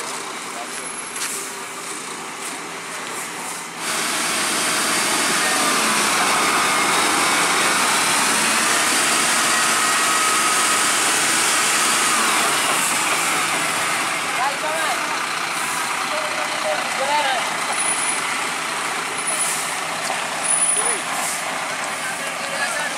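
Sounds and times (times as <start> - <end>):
heavy diesel truck engine under load: 0.0 - 22.9.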